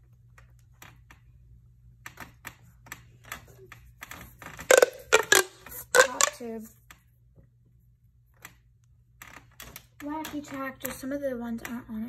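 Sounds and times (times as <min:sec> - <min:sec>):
plastic toys clicking and tapping: 0:02.0 - 0:07.0, 0:09.2 - 0:12.0.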